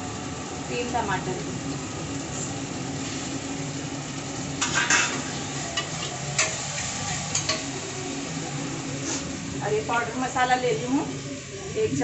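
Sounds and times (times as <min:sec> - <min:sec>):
tomatoes sizzling in hot oil: 0:00.0 - 0:12.0.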